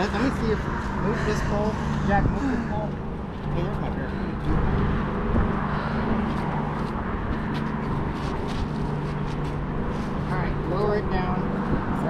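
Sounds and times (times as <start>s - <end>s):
road traffic rumble: 0.0s - 12.0s
vehicle engine hum: 0.0s - 12.0s.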